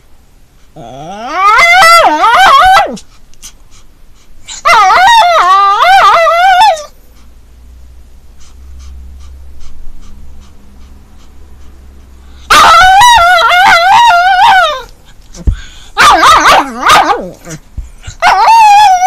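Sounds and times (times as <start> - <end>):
dog whining: 0.8 - 3.0, 4.5 - 7.0, 12.4 - 19.0.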